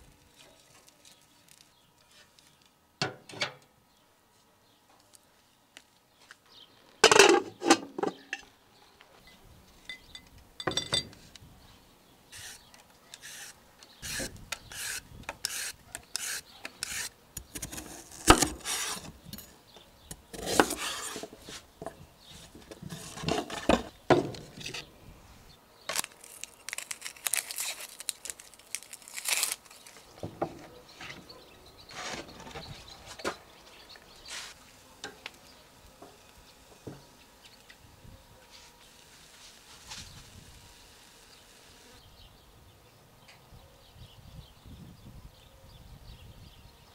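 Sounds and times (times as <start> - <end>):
scraping and rubbing: 13.2 - 19.2, 20.4 - 24.9, 28.9 - 33.3.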